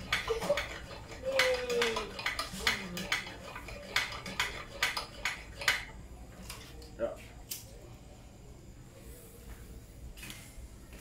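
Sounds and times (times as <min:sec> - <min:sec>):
hand pump metallic clicks: 0:00.0 - 0:05.8.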